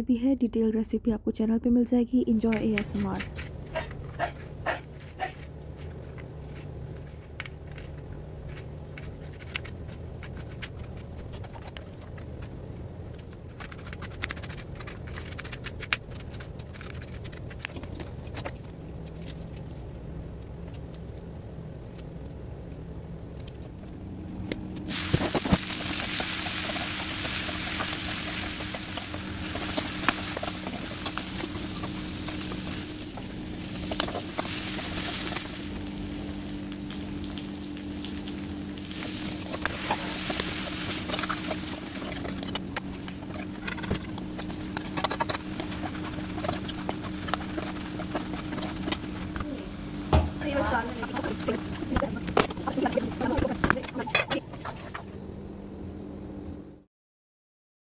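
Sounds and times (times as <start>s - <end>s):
low steady hum: 0.0s - 56.9s
onions sizzling in a pan: 24.9s - 43.5s.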